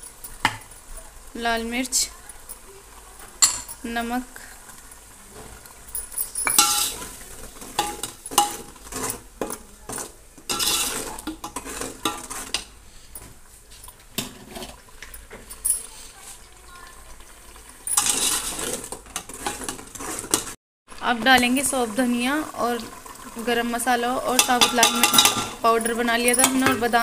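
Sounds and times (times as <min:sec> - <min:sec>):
paste frying: 0:00.0 - 0:27.0
ladle scraping metal pot: 0:05.4 - 0:16.4, 0:17.8 - 0:20.6, 0:24.3 - 0:27.0.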